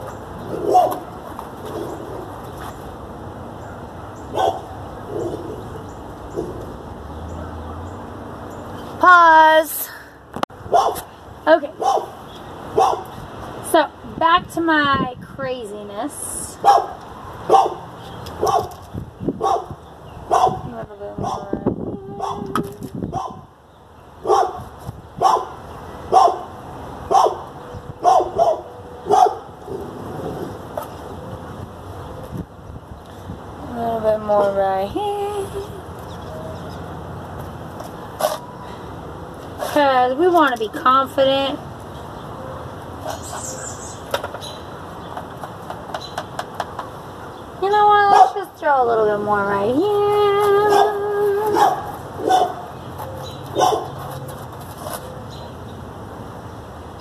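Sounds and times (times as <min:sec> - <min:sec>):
dog barking: 0:00.6 - 0:01.0, 0:04.3 - 0:04.7, 0:10.7 - 0:11.0, 0:11.8 - 0:12.2, 0:12.8 - 0:13.0, 0:16.6 - 0:17.8, 0:18.4 - 0:18.7, 0:19.4 - 0:19.7, 0:20.3 - 0:20.6, 0:21.2 - 0:21.5, 0:23.1 - 0:23.4, 0:24.2 - 0:24.6, 0:25.2 - 0:26.5, 0:27.1 - 0:27.4, 0:28.0 - 0:29.5, 0:48.1 - 0:48.4, 0:50.7 - 0:52.7, 0:53.5 - 0:53.9.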